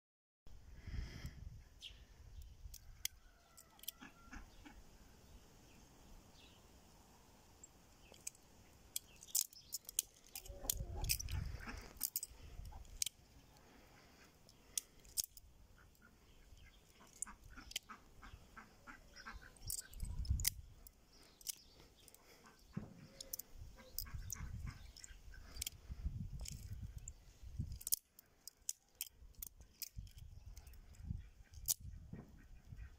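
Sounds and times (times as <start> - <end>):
butterfly knife clicking: 8.0 - 22.3.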